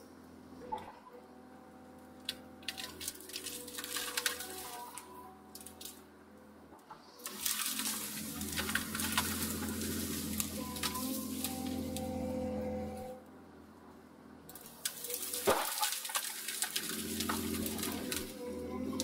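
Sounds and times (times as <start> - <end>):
excavator engine and hydraulics: 0.0 - 19.0
branches crackling and snapping: 2.2 - 6.0, 7.2 - 12.4, 14.5 - 19.0.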